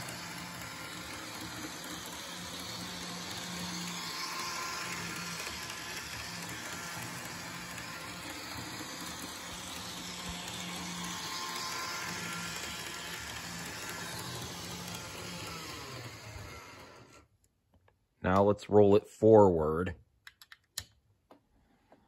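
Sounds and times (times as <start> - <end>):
wheels rolling on rails: 0.0 - 17.2
small electric motor whirring: 0.0 - 17.3.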